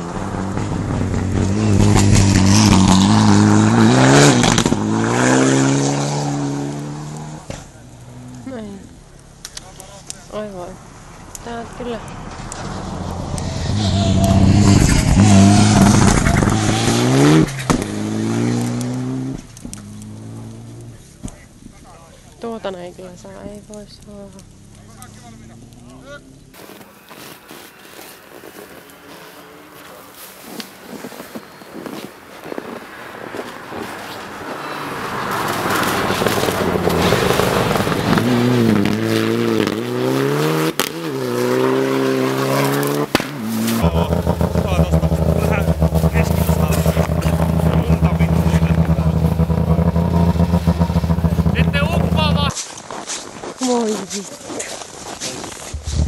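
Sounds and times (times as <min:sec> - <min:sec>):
rally car engine revving past: 0:00.0 - 0:08.5, 0:11.4 - 0:20.9, 0:33.2 - 0:52.5
tyre noise on gravel: 0:25.6 - 0:56.0.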